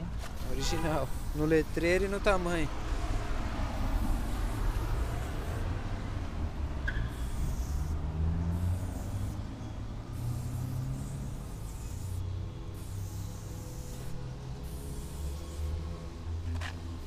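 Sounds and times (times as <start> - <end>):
street traffic rumble: 0.0 - 17.0
spray paint can hissing: 0.2 - 2.0, 3.8 - 5.7, 6.8 - 15.8.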